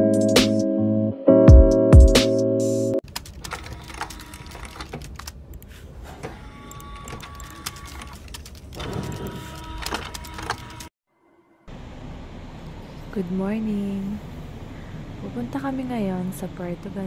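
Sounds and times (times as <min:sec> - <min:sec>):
keyboard typing clicks: 0:03.1 - 0:05.7, 0:06.7 - 0:10.9.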